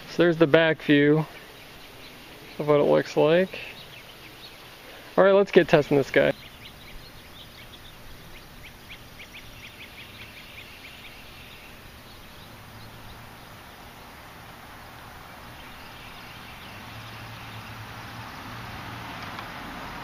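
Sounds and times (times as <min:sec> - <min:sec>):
small bird chirping: 0:00.0 - 0:14.3, 0:15.0 - 0:18.6
outdoor ambience: 0:00.0 - 0:20.0
pickup truck engine and road noise: 0:08.8 - 0:20.0.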